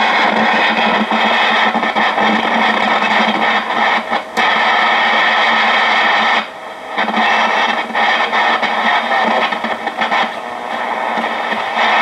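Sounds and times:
radio playing music: 0:00.0 - 0:12.0
radio static hiss: 0:00.0 - 0:12.0.

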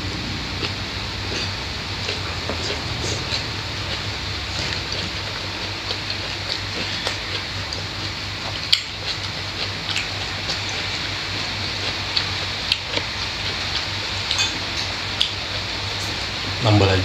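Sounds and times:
background hiss and hum: 0:00.0 - 0:17.0
chewing and lip smacks: 0:00.6 - 0:15.5.

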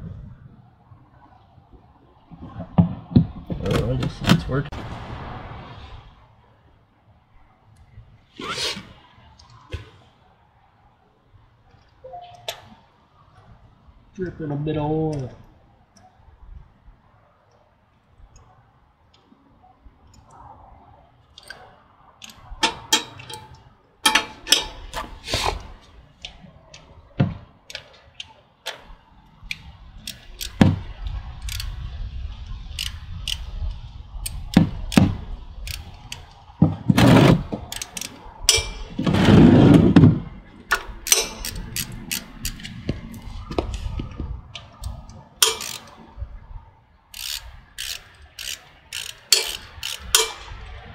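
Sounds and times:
low rumble: 0:00.0 - 0:06.6
tools clicking and clanking: 0:21.3 - 0:31.8, 0:32.7 - 0:46.1, 0:47.1 - 0:50.9.

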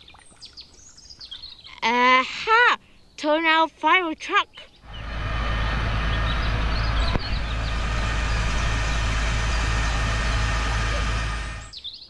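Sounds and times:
fire engine low rumble: 0:04.8 - 0:11.8
water jets hissing: 0:04.9 - 0:11.7.

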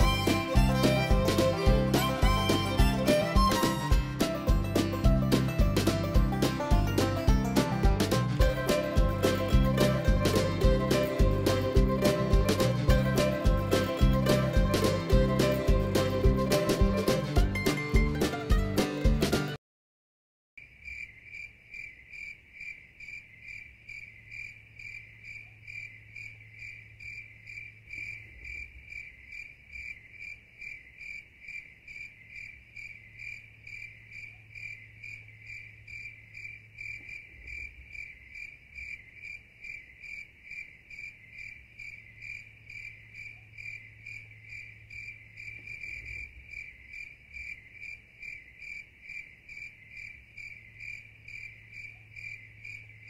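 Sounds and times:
cricket chirping: 0:20.6 - 0:53.0.

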